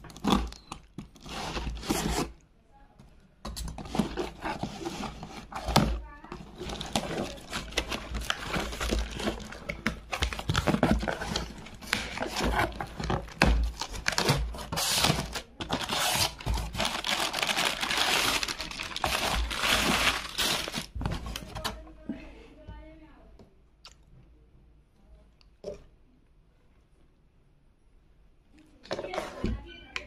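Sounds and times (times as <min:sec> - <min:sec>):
plastic sheeting crinkling: 0:15.2 - 0:21.4.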